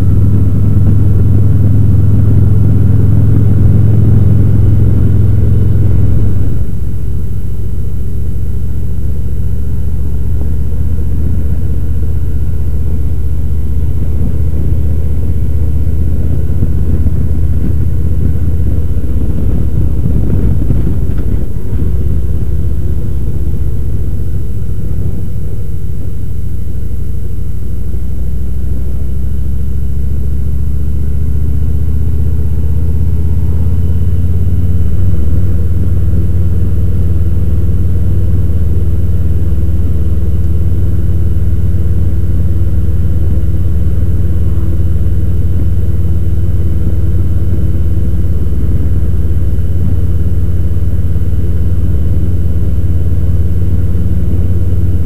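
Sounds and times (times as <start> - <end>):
motorcycle engine running: 0.0 - 55.0
wind and road noise: 0.0 - 55.0.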